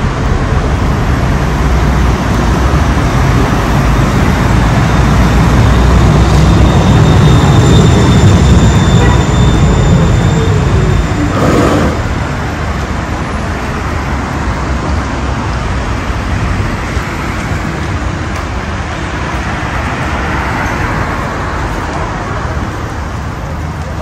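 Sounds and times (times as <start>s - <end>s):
city street traffic: 0.0s - 24.0s
tram passing: 0.0s - 24.0s.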